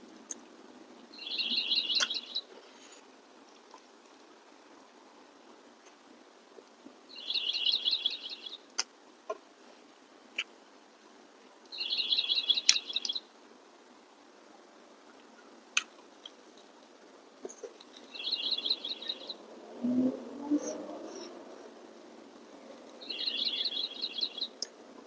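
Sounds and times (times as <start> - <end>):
songbird singing high notes: 1.2 - 2.5, 7.1 - 8.7, 11.7 - 13.3, 18.1 - 20.8, 23.0 - 24.7.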